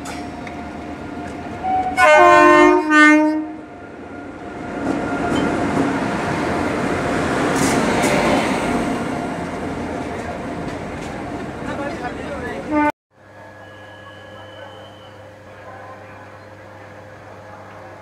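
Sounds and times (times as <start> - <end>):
locomotive horn blasts: 1.6 - 3.6, 12.7 - 12.9
train wheels rolling: 4.6 - 12.7.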